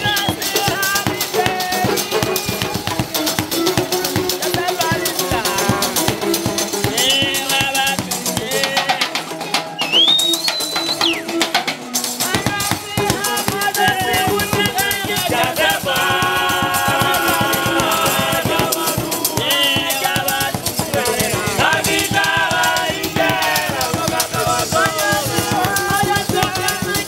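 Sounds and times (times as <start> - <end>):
shaken rattle beat: 0.0 - 9.3, 9.9 - 27.0
strummed guitar: 0.0 - 27.0
high whistle-like note: 9.8 - 11.4.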